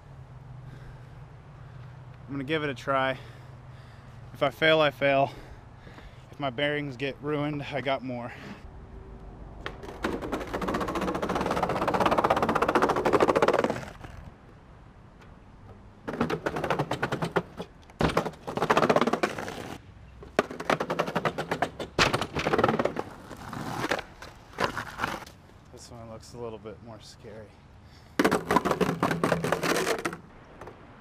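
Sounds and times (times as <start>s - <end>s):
skateboard wheels clacking on planks: 9.6s - 14.3s, 15.7s - 25.3s, 28.2s - 30.8s.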